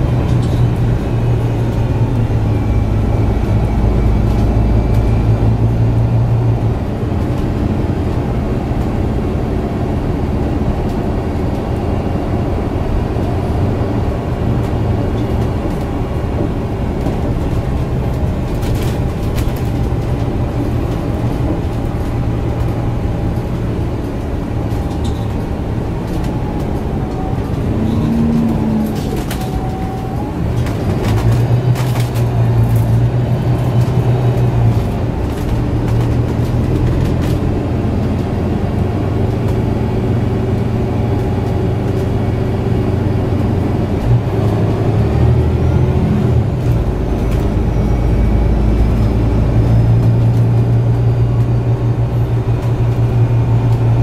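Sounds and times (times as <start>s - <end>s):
bus diesel engine running: 0.0s - 54.0s
road and cabin noise: 0.0s - 54.0s.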